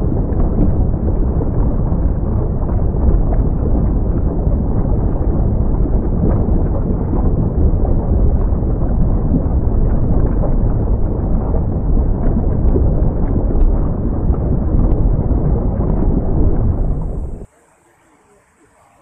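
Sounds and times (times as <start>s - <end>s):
faint crackles: 0.0s - 19.0s
volcano eruption rumble: 0.0s - 19.0s.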